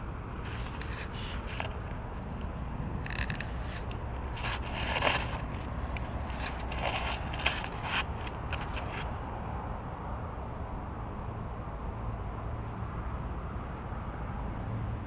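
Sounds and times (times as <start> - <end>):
crackling scrapes: 0.4 - 9.2.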